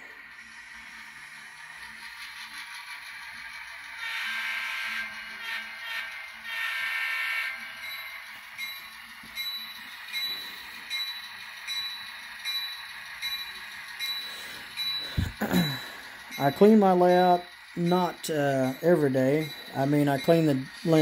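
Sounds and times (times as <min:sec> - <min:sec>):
locomotive bell ringing: 0:03.5 - 0:21.0
locomotive horn blasts: 0:04.0 - 0:07.6.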